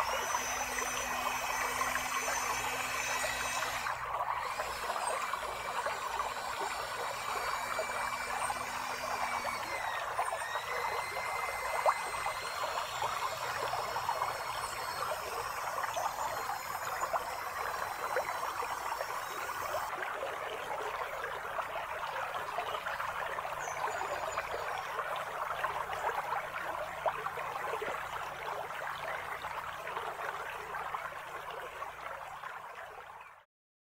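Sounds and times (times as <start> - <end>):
creek water trickling: 0.0 - 33.4.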